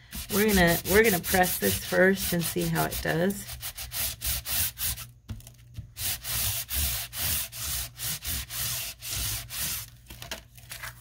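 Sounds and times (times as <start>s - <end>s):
ink pad rubbing on corrugated cardboard: 0.1s - 5.0s.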